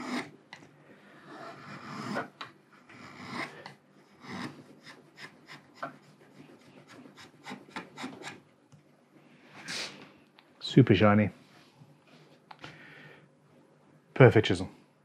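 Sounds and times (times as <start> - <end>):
chisel scraping wood: 0.0 - 0.4, 1.2 - 8.4.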